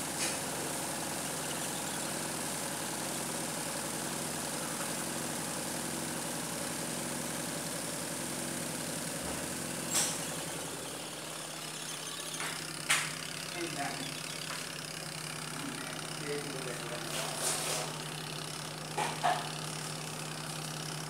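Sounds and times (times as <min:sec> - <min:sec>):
washing machine motor humming: 0:00.0 - 0:21.0.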